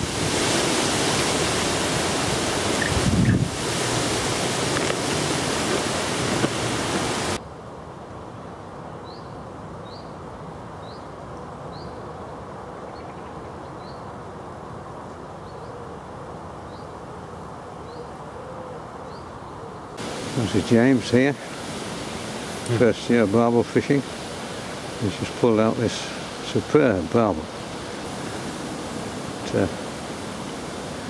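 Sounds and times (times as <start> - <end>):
wind buffeting the microphone: 0.0 - 7.4
outdoor hiss: 0.0 - 9.6, 19.9 - 31.0.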